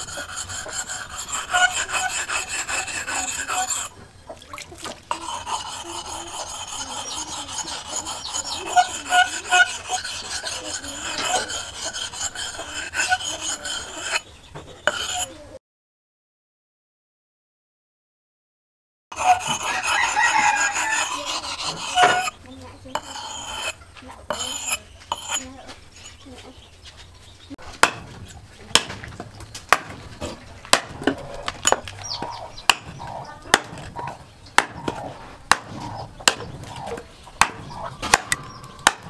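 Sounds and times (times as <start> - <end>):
rooster crowing: 19.6 - 21.4
axe chopping wooden stick: 27.6 - 39.0.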